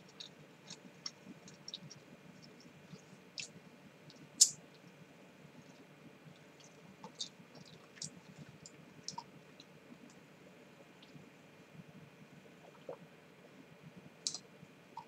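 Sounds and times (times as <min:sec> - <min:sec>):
faint low room hum: 0:00.0 - 0:15.0.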